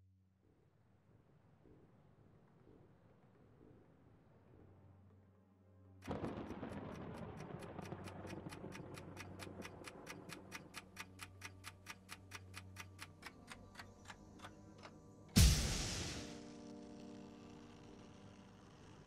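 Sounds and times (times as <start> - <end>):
fast clock-like ticking: 6.1 - 14.5
loud burst of noise: 15.4 - 16.8.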